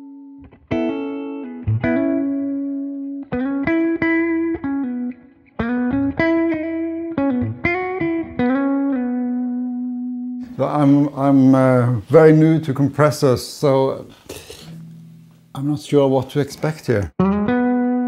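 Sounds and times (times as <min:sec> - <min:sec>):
clean electric guitar notes: 0:00.0 - 0:10.6, 0:14.3 - 0:15.6, 0:17.2 - 0:18.0.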